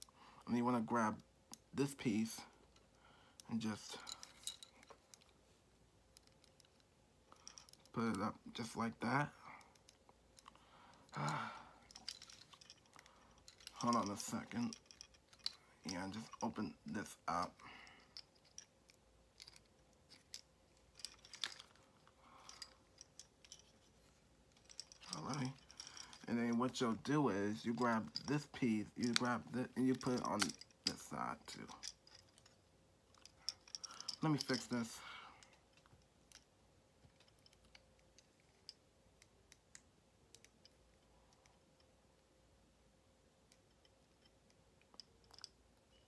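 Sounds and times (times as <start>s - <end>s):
plastic toy joints clicking: 27.6s - 32.5s.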